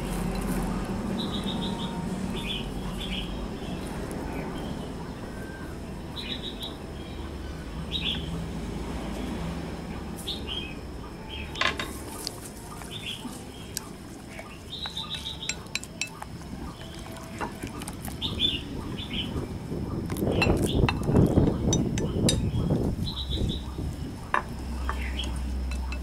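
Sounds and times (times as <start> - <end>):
small birds chirping: 0.7 - 9.4, 10.0 - 26.0
chopsticks clinking against glass bowl: 14.9 - 17.6, 25.7 - 26.0.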